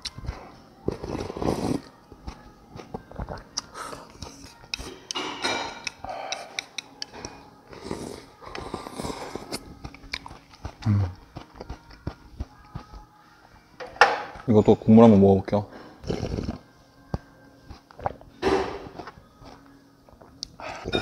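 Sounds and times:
slurping broth: 0:00.9 - 0:01.9, 0:06.3 - 0:11.2, 0:16.0 - 0:16.6
swallowing and mouth noises: 0:16.0 - 0:16.6, 0:17.7 - 0:18.3.

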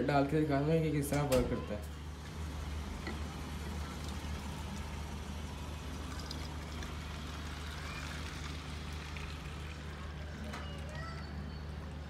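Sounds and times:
water pouring between bottles: 0:02.1 - 0:11.3.

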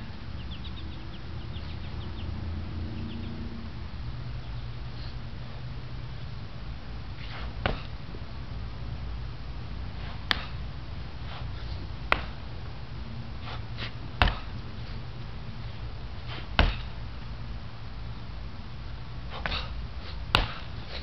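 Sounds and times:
low rumble: 0:00.0 - 0:20.0
dull thud: 0:07.4 - 0:07.9, 0:13.8 - 0:14.6, 0:16.3 - 0:17.0, 0:20.3 - 0:20.8.

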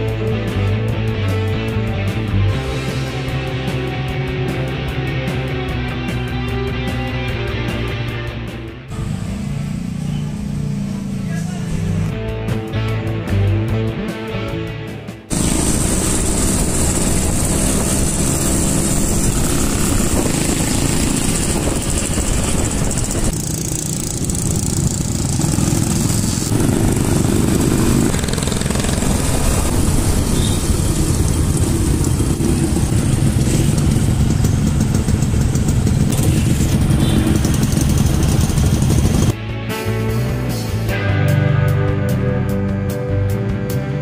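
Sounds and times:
road and wind noise: 0:08.3 - 0:13.1, 0:15.2 - 0:39.4
small motorcycles running: 0:08.9 - 0:12.1, 0:15.3 - 0:39.4.

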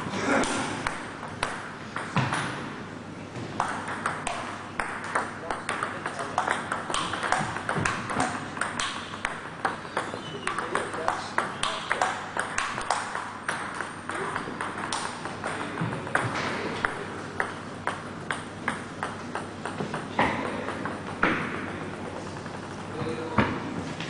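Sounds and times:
table tennis ball clicking: 0:03.6 - 0:16.2.

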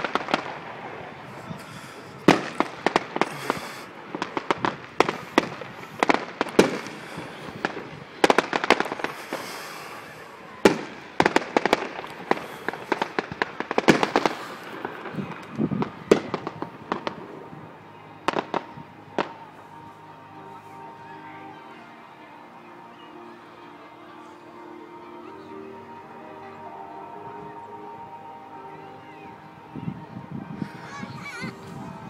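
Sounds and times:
fireworks bangs and crackles: 0:00.0 - 0:19.9.

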